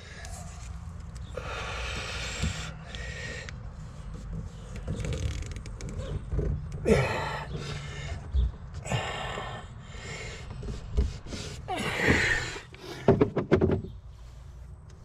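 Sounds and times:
man breathing heavily: 0.0s - 4.2s, 6.8s - 13.2s.

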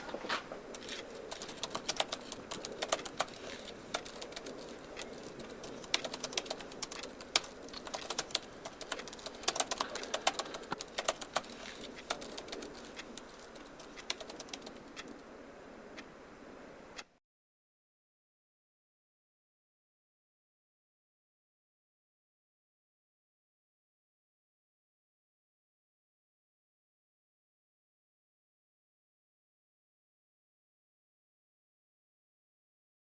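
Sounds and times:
low steady hiss: 0.0s - 17.2s
laptop keyboard typing: 0.6s - 15.3s.

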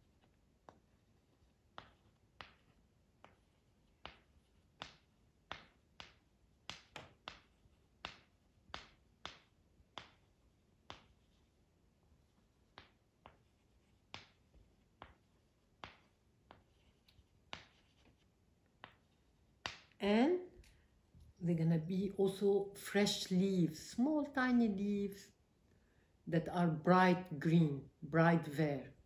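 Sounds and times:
pen tapping on paper: 1.7s - 11.3s, 12.6s - 20.0s.

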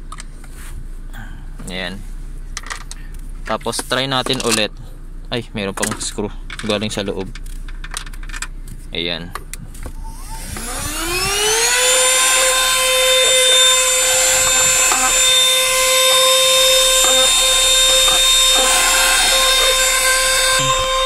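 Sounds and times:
handheld vacuum cleaner whine: 10.0s - 21.0s.

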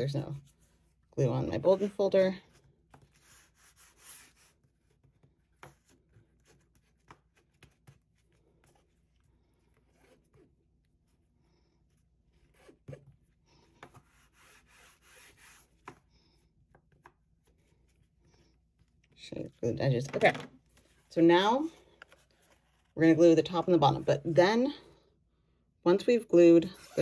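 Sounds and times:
bone folder rubbing bookcloth: 0.4s - 10.6s, 12.3s - 16.1s.

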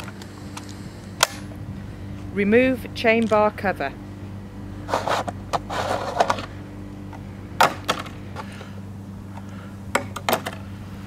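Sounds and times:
steady low hum: 0.0s - 11.0s
plastic cover scraping rustle: 4.9s - 6.4s.

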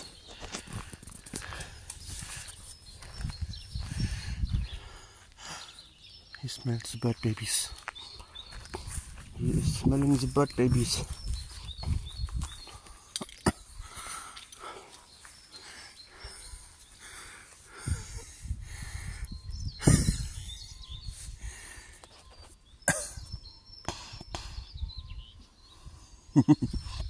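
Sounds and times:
wind rumbling on microphone: 0.0s - 5.2s, 8.4s - 13.0s, 17.7s - 21.9s, 22.7s - 27.0s
faint bird chirps: 0.0s - 27.0s.

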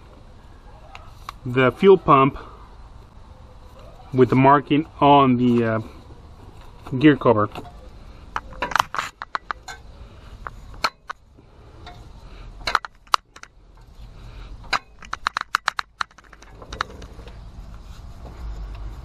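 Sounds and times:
low steady rumble: 0.0s - 19.0s
handling clicks and knocks: 6.6s - 11.2s, 11.8s - 14.0s, 14.6s - 17.4s.

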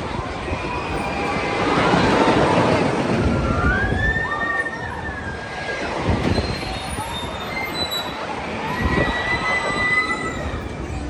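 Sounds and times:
roller coaster rumbling: 0.0s - 11.0s
high wheel squeal: 6.2s - 11.0s.

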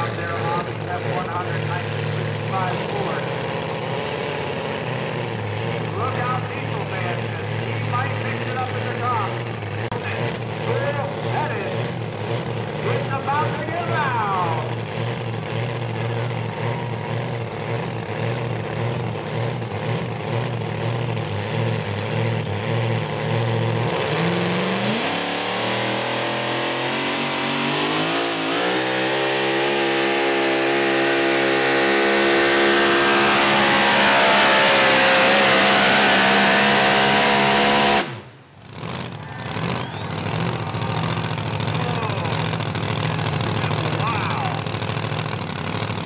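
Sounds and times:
engine low rumbling idle: 0.0s - 24.4s, 38.2s - 46.0s
supercharged truck engine at full throttle: 0.0s - 46.0s.

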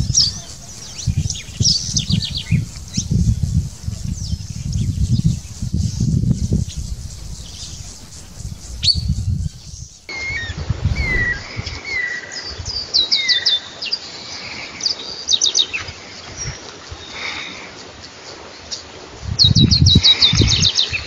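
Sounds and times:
bird rattling trills: 0.0s - 10.1s
bird down-slurred chirps: 0.0s - 12.1s.

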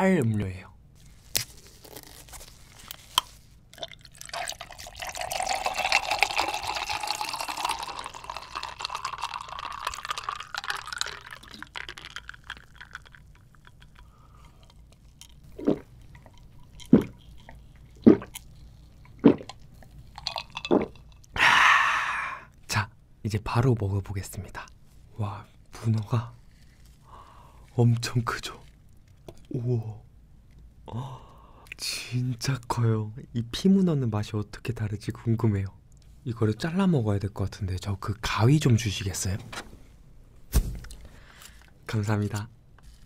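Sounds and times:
liquid pouring into a glass: 3.7s - 14.6s, 20.2s - 21.3s.

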